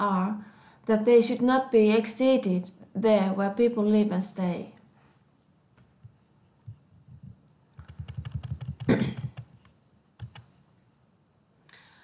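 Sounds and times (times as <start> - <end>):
keyboard and mouse clicking: 7.8 - 10.5.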